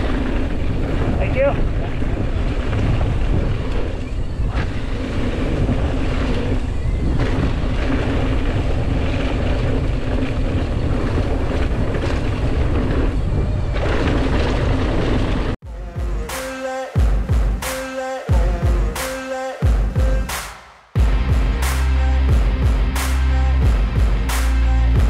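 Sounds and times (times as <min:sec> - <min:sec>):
tyres rolling on dirt trail: 0:00.0 - 0:15.6
wind buffeting microphone: 0:00.0 - 0:15.6.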